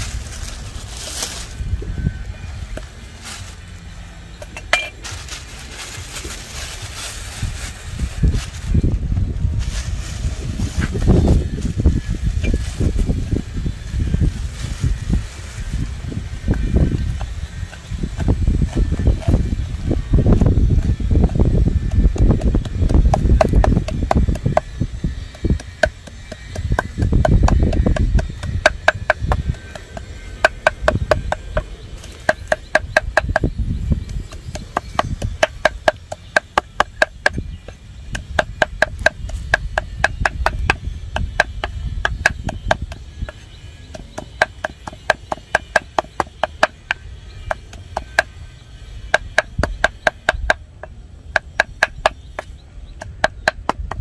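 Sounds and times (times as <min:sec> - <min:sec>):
wind rumble on microphone: 0:00.0 - 0:54.0
cleaver chopping on wooden block: 0:21.8 - 0:24.7, 0:25.3 - 0:33.5, 0:34.2 - 0:48.4, 0:49.1 - 0:54.0.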